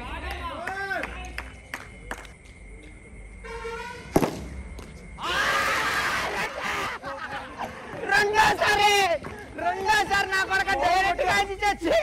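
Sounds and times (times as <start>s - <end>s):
cricket bat striking ball: 4.1s - 4.9s
players shouting: 5.2s - 12.0s.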